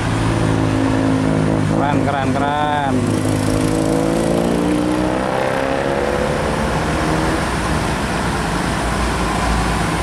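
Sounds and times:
truck engine rumble: 0:00.0 - 0:04.0, 0:06.2 - 0:10.0
engine accelerating: 0:00.0 - 0:10.0.

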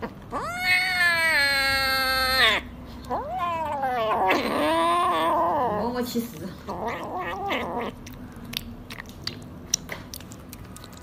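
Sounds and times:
kitten meowing: 0:00.3 - 0:05.8.

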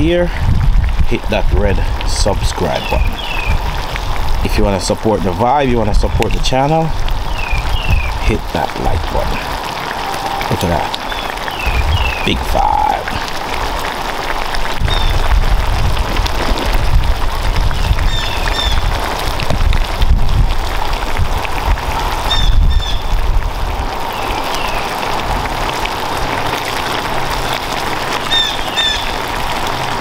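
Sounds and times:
sauce sizzling and bubbling: 0:00.0 - 0:30.0
low rumble: 0:11.5 - 0:13.7.

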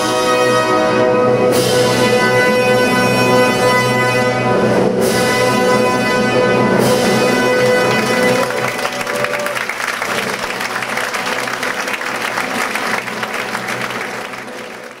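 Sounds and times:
orchestra held chord: 0:06.1 - 0:15.0
audience applauding: 0:07.2 - 0:15.0.

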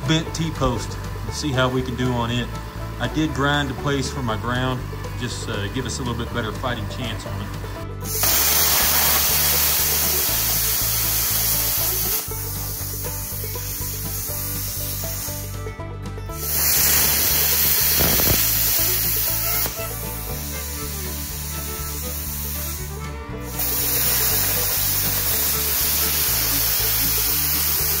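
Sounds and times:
background music: 0:00.0 - 0:28.0
plasma cutter hissing: 0:08.0 - 0:15.5, 0:16.4 - 0:28.0.

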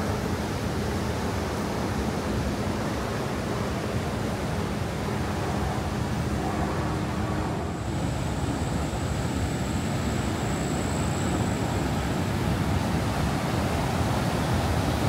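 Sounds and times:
river rapids rushing: 0:02.2 - 0:10.5.

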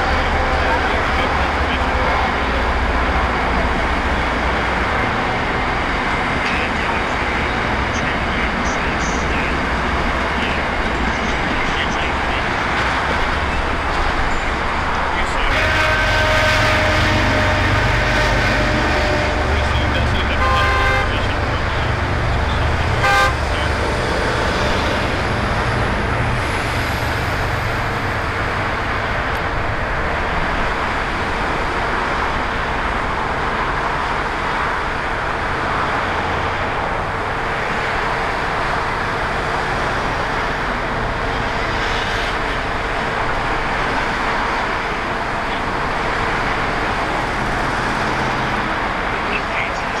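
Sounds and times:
deep engine rumble: 0:00.0 - 0:50.0
road traffic passing: 0:00.0 - 0:50.0
short horn toot: 0:15.5 - 0:21.2, 0:23.0 - 0:23.5.

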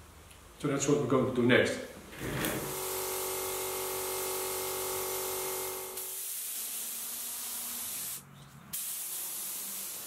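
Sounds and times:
spray gun hissing: 0:02.6 - 0:10.0.

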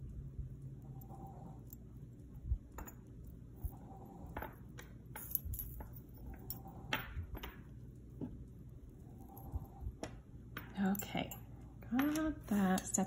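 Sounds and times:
metal chains clinking: 0:02.7 - 0:07.7.

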